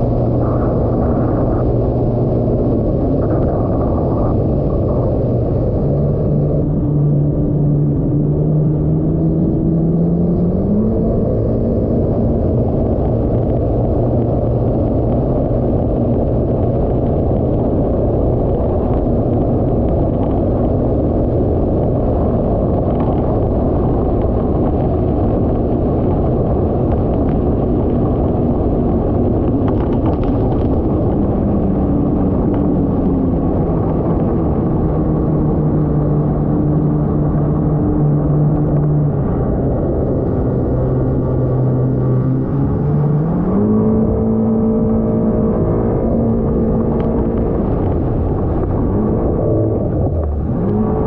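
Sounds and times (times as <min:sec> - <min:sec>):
personal watercraft engine running: 0:00.0 - 0:51.0
wind rushing over microphone: 0:00.0 - 0:51.0.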